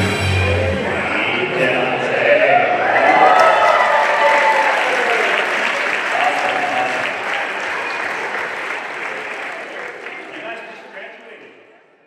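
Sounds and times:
crowd clapping: 0:03.2 - 0:11.6.

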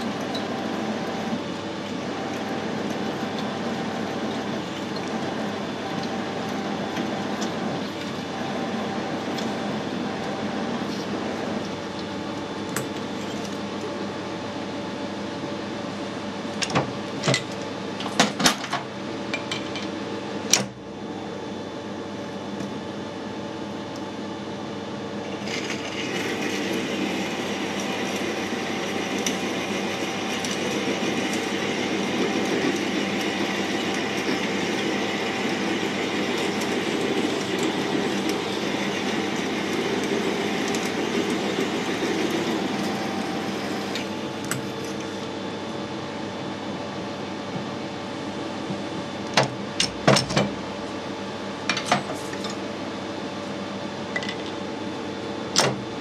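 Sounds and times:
metal lathe running: 0:00.0 - 0:13.5, 0:25.1 - 0:45.2.

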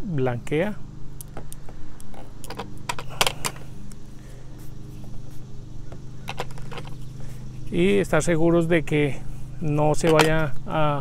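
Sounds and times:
steady low hum: 0:00.0 - 0:11.0
metal tools clicking and clinking: 0:06.2 - 0:07.1, 0:10.0 - 0:10.5.

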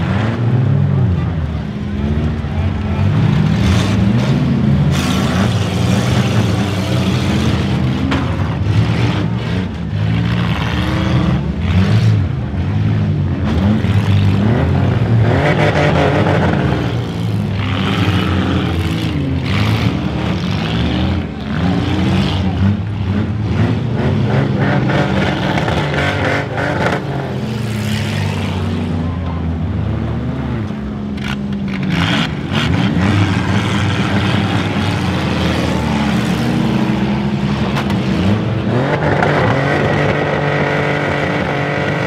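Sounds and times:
car engines revving: 0:00.0 - 0:42.0.

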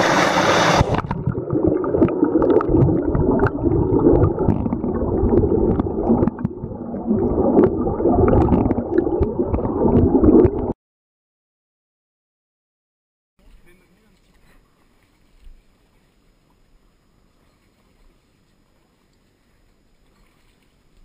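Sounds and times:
water rushing over rocks: 0:00.0 - 0:10.7
muffled underwater water sound: 0:00.0 - 0:10.8, 0:13.4 - 0:21.0.

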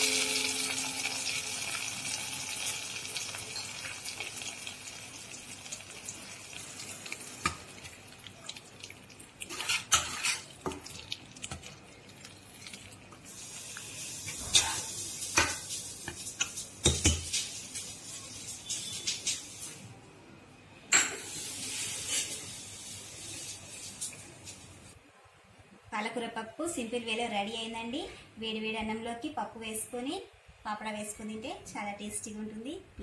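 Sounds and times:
hot oil sizzling: 0:00.0 - 0:19.8, 0:21.0 - 0:25.0
metal spoon scraping pot: 0:09.4 - 0:10.6.

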